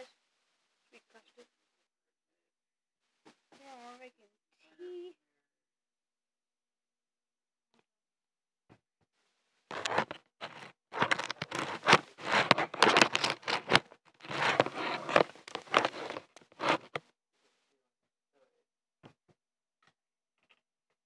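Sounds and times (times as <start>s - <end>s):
phone handling rustling and scraping: 9.7s - 17.0s.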